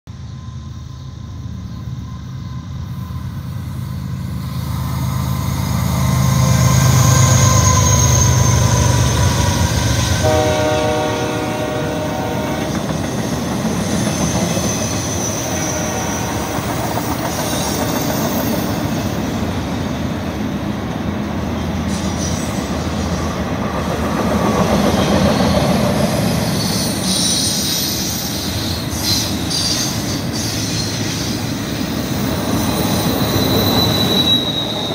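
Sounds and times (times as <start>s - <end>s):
diesel locomotive engine rumble: 0.1s - 34.9s
high wheel squeal: 4.4s - 11.0s, 12.6s - 19.1s, 24.8s - 34.9s
train horn: 10.1s - 12.9s, 15.4s - 16.8s.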